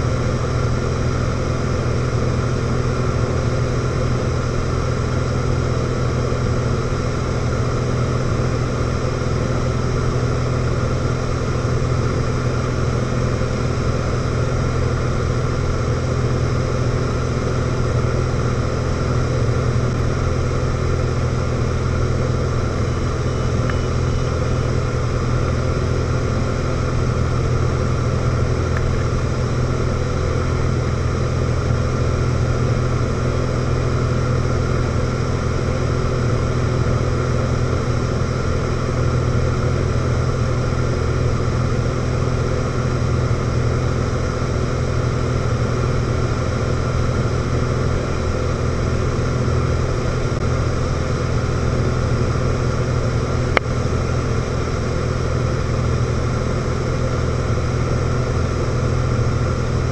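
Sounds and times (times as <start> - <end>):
light aircraft engine and propeller: 0.0 - 59.9.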